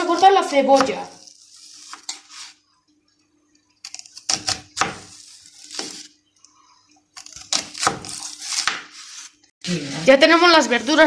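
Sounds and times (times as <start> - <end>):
knife chopping on cutting board: 3.9 - 6.1, 7.2 - 9.2.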